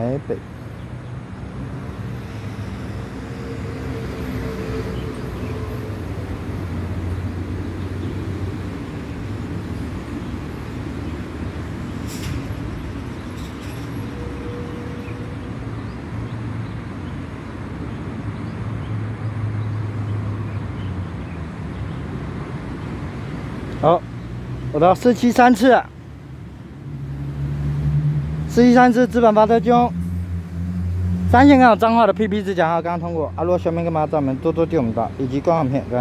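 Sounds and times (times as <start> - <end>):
train rumbling over steel bridge: 1.6 - 15.8.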